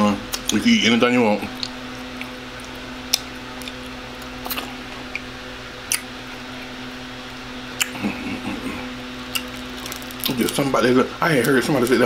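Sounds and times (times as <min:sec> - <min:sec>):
steady low hum: 0:00.0 - 0:12.0
lip smacks: 0:01.5 - 0:05.3, 0:05.9 - 0:06.1, 0:07.7 - 0:08.1, 0:09.3 - 0:09.6
man chewing wet mouth sounds: 0:01.5 - 0:06.7, 0:07.7 - 0:10.6.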